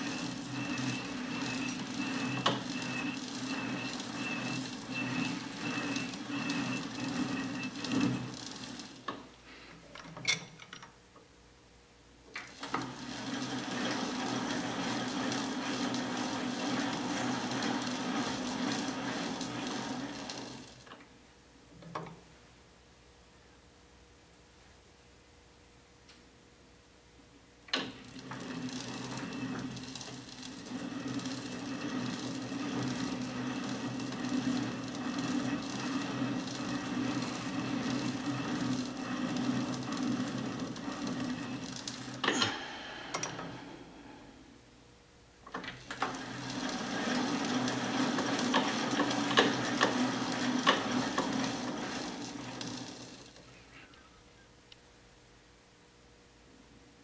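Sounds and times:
lathe running: 0.0s - 9.4s, 12.4s - 20.9s, 27.8s - 44.6s, 45.5s - 53.5s.

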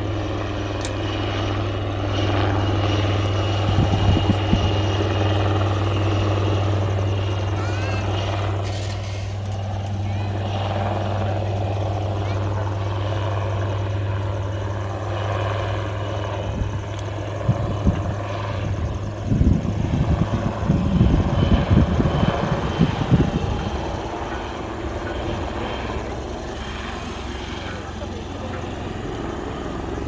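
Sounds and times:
helicopter rotor drone: 0.0s - 30.0s.

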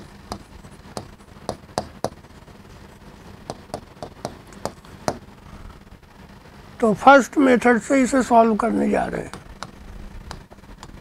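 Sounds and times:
chalk tapping on blackboard: 0.0s - 2.2s, 3.5s - 5.2s, 9.3s - 11.0s.

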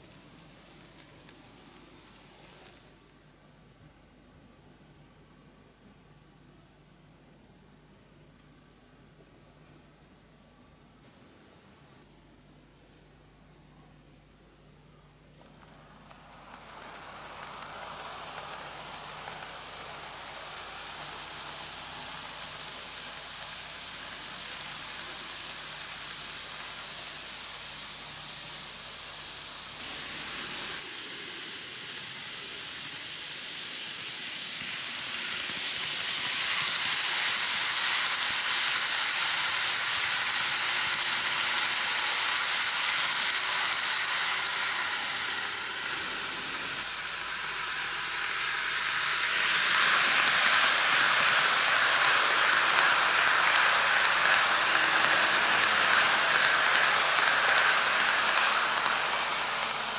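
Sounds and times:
model train whirring on track: 0.0s - 3.2s, 15.4s - 59.9s.

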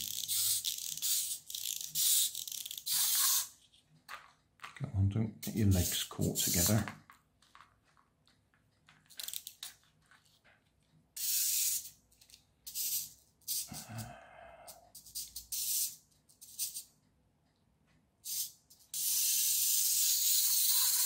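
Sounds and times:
plastic pieces rattling and clicking: 6.5s - 10.5s.

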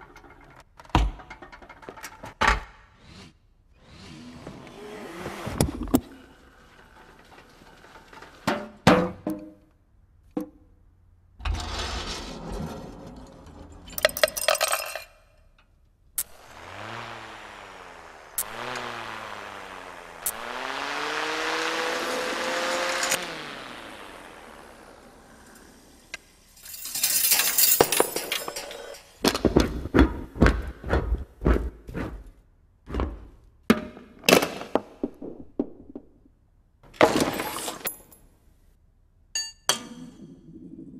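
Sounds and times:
parts rolling along metal rail: 0.0s - 2.4s, 5.8s - 8.9s, 11.4s - 15.1s, 22.0s - 29.6s
rattle of clanks: 26.6s - 29.4s.

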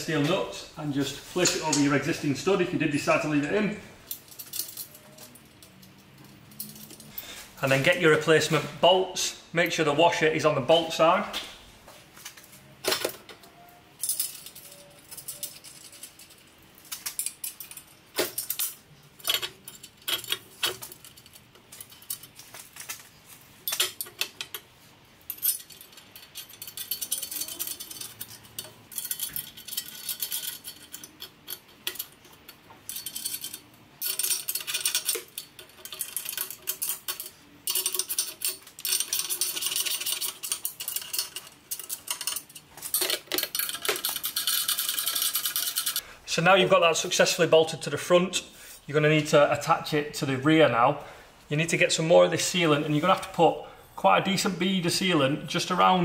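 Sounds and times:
metallic clinks of bolts: 25.3s - 46.0s.

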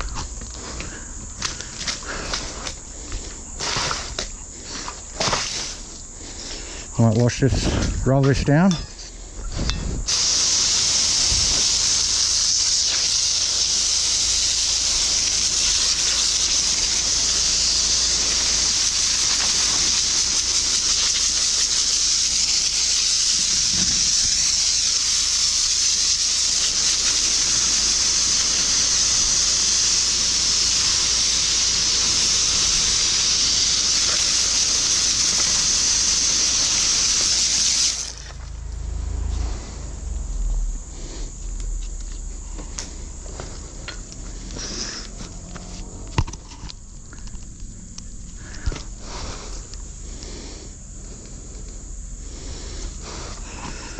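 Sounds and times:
drain jetter spraying water: 10.1s - 38.5s.

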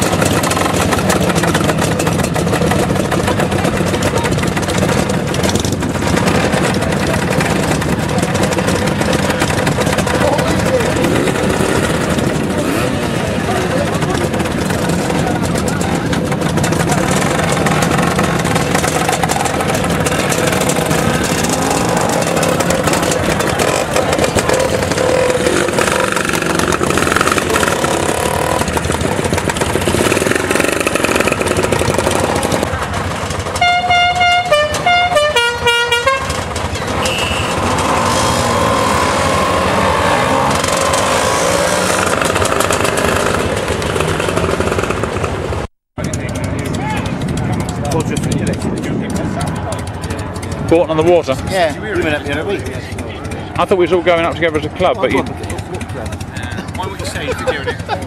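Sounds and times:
motor scooter engines: 0.0s - 58.0s
traffic noise: 0.0s - 58.0s
musical horn playing notes: 33.6s - 36.4s, 37.0s - 38.0s.

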